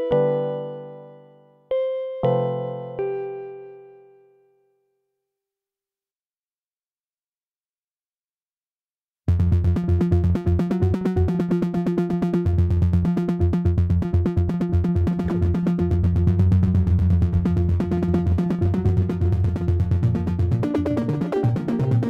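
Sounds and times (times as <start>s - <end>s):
low bass tones: 12.5s - 22.0s.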